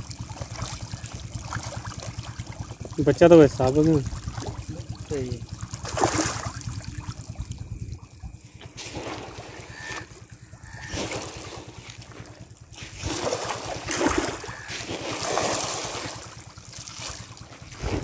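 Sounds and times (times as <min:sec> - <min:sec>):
fish thrashing and splashing: 0:00.0 - 0:18.0
wind rumble on microphone: 0:06.4 - 0:08.5, 0:17.6 - 0:18.0.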